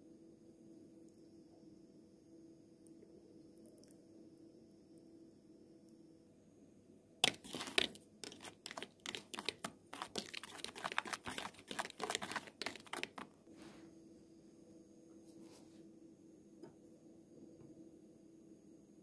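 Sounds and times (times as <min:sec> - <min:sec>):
utensil scraping bowl: 0:07.2 - 0:13.3.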